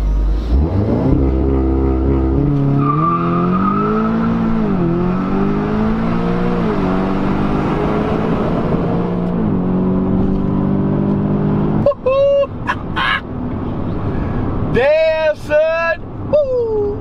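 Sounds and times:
car engine accelerating: 0.0s - 11.9s.

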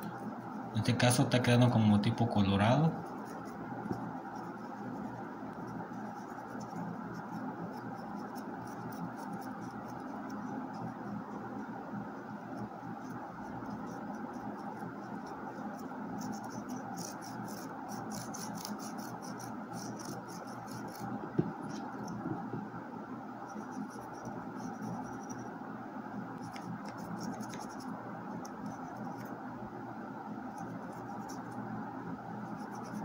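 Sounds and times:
paintbrush scratching on wood: 2.8s - 11.4s, 12.4s - 22.3s, 23.4s - 25.5s, 26.4s - 29.4s, 30.5s - 31.6s, 32.4s - 33.0s.

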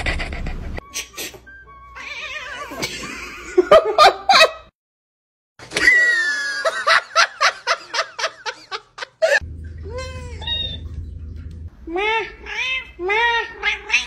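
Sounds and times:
people laughing: 5.8s - 9.4s.

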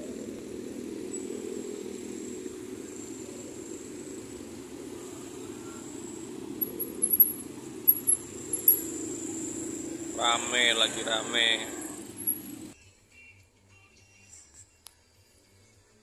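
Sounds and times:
passing cars and motorbikes: 0.0s - 12.8s.

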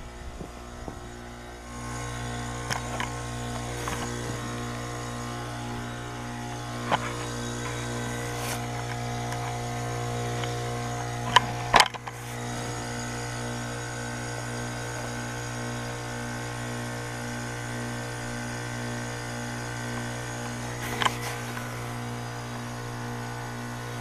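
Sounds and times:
heat pump humming: 0.0s - 24.0s.

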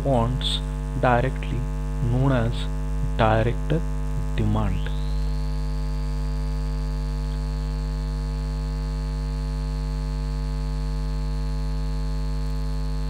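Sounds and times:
high thin whine: 0.0s - 8.5s
electrical mains hum: 0.0s - 13.0s.

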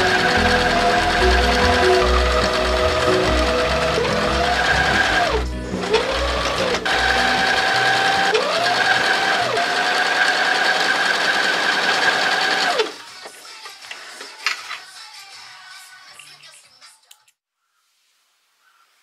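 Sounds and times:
background music: 0.0s - 9.6s, 12.2s - 17.2s
sewing machine motor whine: 0.0s - 13.0s.

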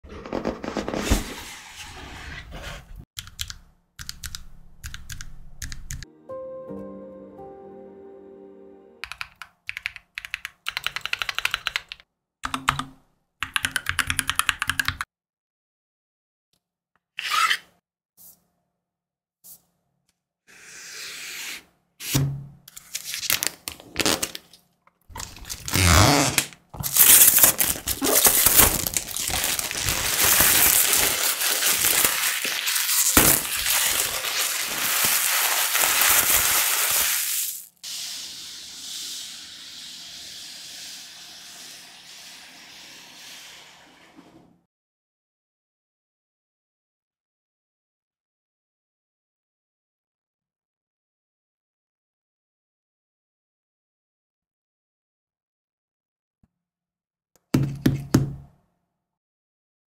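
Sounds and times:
mechanical keyboard typing: 3.2s - 6.0s, 9.0s - 15.1s
plastic shrink wrap crackling: 23.2s - 37.7s.

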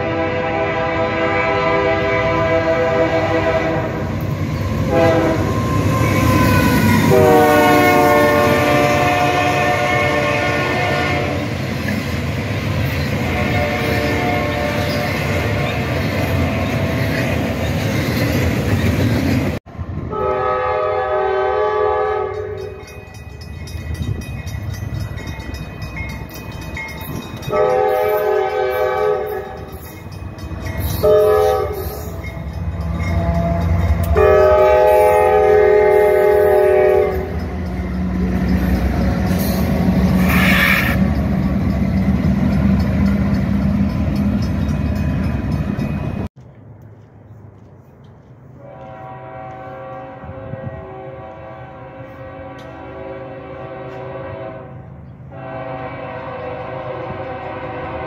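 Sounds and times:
locomotive air horn blasts: 0.0s - 4.1s, 4.8s - 11.6s, 13.2s - 17.0s, 20.1s - 22.6s, 27.5s - 29.7s, 30.9s - 32.3s, 33.2s - 37.4s, 39.3s - 41.0s, 48.6s - 58.0s
train wagons rumbling past: 0.0s - 58.0s.

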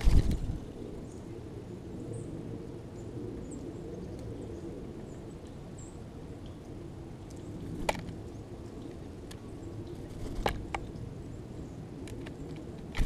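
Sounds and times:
low outdoor rumble: 6.2s - 13.0s.

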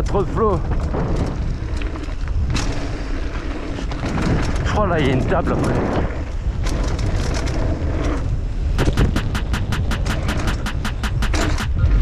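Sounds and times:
mountain bike riding on trail: 0.0s - 12.0s
wind buffeting microphone: 0.0s - 12.0s
rapid even clicks: 8.8s - 12.0s.

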